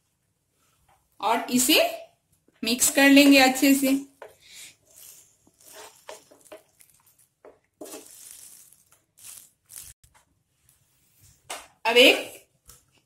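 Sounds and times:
spatula scraping a frying pan: 0:04.3 - 0:06.9, 0:07.8 - 0:09.4.

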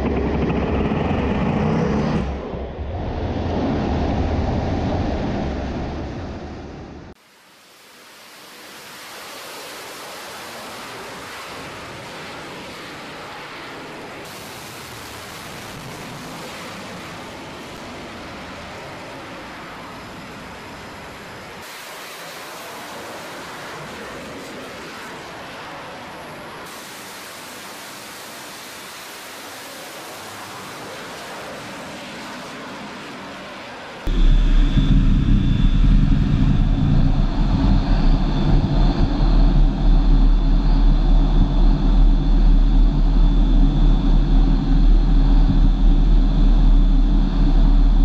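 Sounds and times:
jet engines roaring: 0:00.0 - 0:07.2, 0:09.1 - 0:48.0.

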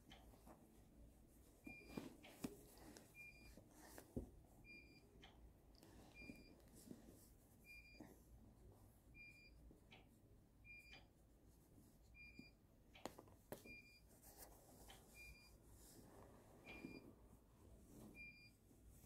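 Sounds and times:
clothes rustling: 0:00.3 - 0:04.4.

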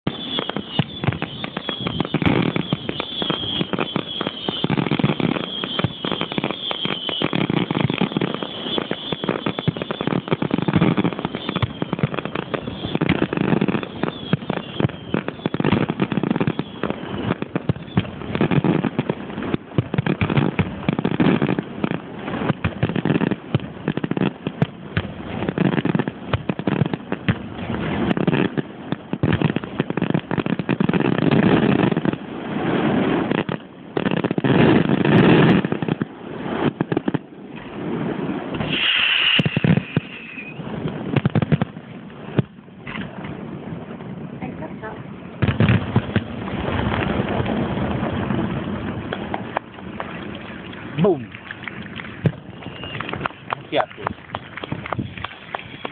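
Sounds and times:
fireworks bangs and crackling: 0:00.0 - 0:55.9
high whistling tone: 0:38.6 - 0:40.7, 0:52.5 - 0:53.1.

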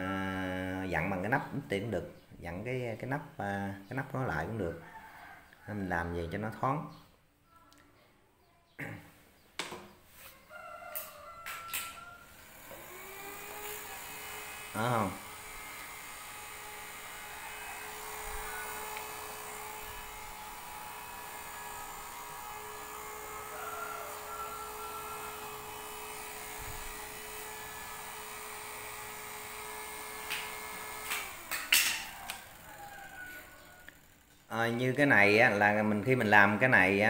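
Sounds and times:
small fan humming: 0:10.5 - 0:37.0.

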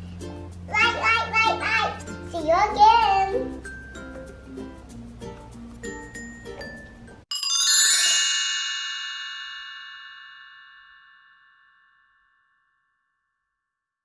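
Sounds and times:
light background music: 0:00.0 - 0:07.3
bright bell-like chime: 0:06.0 - 0:13.6.

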